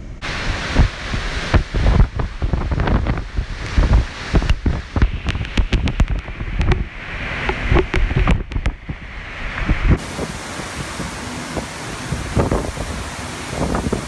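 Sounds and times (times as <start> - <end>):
wind buffeting microphone: 0.0 - 14.0
wind-driven rain: 0.0 - 14.0
sharp crackles: 0.4 - 10.0.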